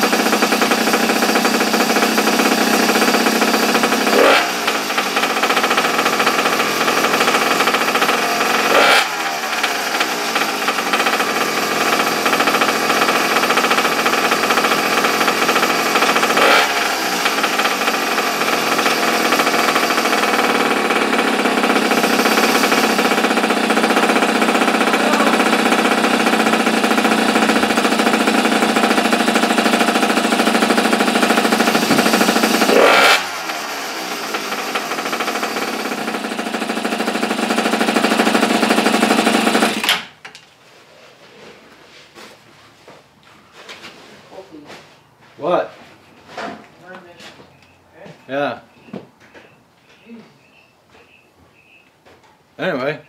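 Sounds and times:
small two-stroke engine running: 0:00.0 - 0:40.1.

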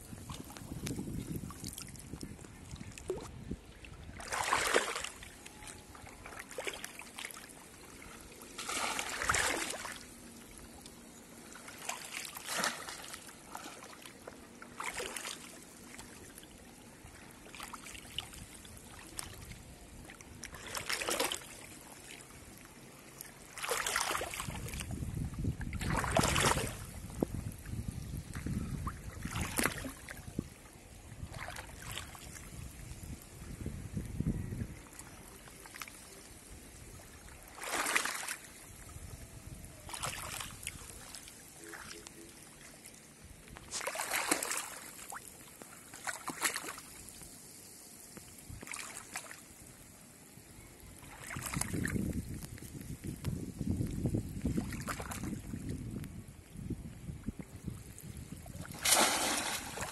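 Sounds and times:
water sloshing: 0:00.1 - 0:25.0, 0:25.6 - 0:27.2, 0:28.3 - 0:32.6, 0:34.9 - 0:38.9, 0:39.7 - 0:47.2, 0:51.0 - 0:51.9, 0:54.4 - 0:55.6, 0:58.5 - 0:59.9
fish trap splashing into water: 0:25.8 - 0:26.9, 0:58.6 - 0:59.9.

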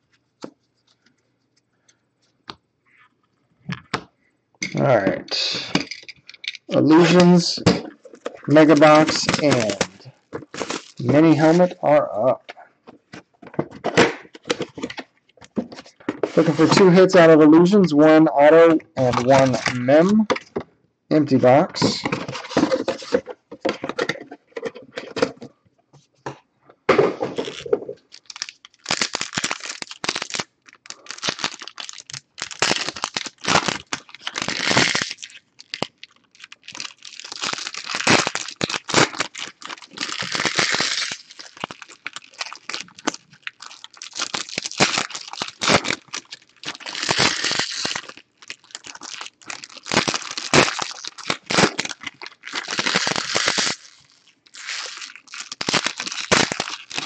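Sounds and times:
cards being handled: 0:05.3 - 0:11.7, 0:19.0 - 0:20.5
foil wrappers crinkling and tearing: 0:06.7 - 0:12.0, 0:19.0 - 0:20.2, 0:27.3 - 0:57.0.

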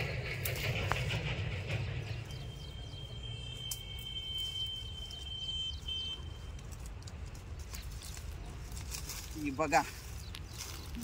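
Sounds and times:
branches rustling and snapping: 0:03.7 - 0:11.0.

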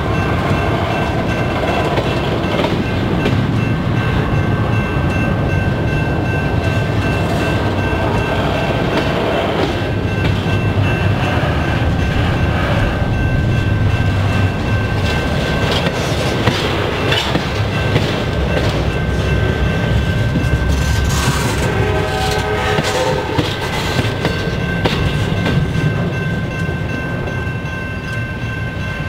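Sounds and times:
train wheels rumbling on rail: 0:00.0 - 0:29.0
steady high-pitched tone: 0:09.9 - 0:29.0.

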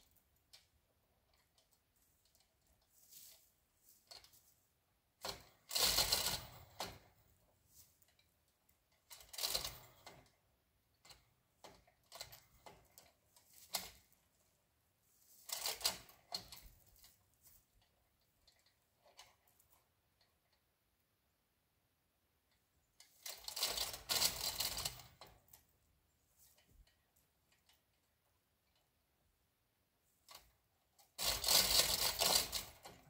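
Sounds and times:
ratchet clicking: 0:05.2 - 0:07.1, 0:23.0 - 0:25.2, 0:31.2 - 0:33.0.

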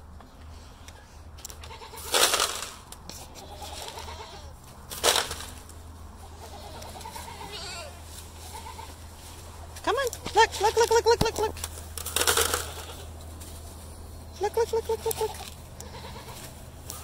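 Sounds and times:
poultry harsh calls: 0:06.2 - 0:09.1, 0:14.4 - 0:17.0.

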